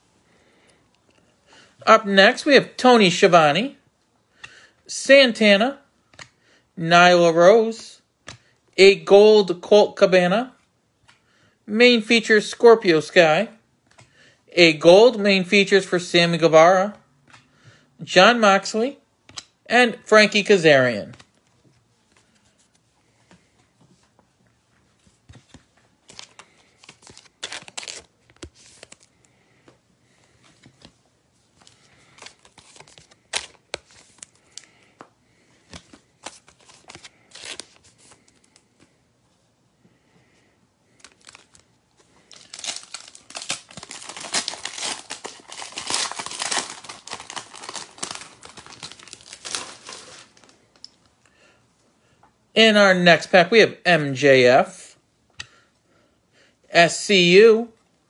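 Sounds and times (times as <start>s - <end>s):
wrapper crinkling and tearing: 26.0s - 29.1s, 31.7s - 34.8s, 35.7s - 38.6s, 40.9s - 50.9s.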